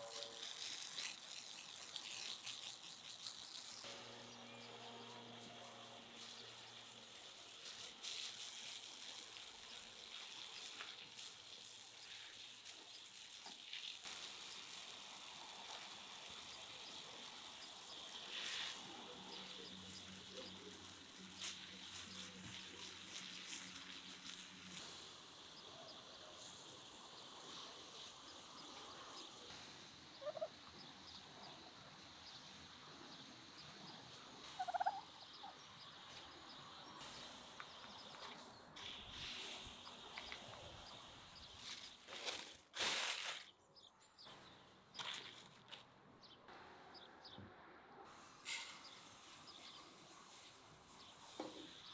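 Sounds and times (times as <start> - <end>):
farmyard ambience: 0.0 - 47.4, 48.2 - 51.9
domestic fowl calls: 30.2 - 30.6, 34.5 - 35.6.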